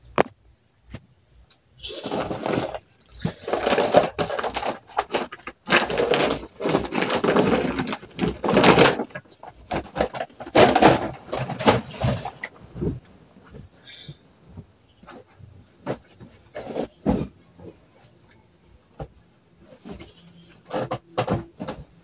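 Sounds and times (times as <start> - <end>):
bag being shaken out: 1.8 - 12.4.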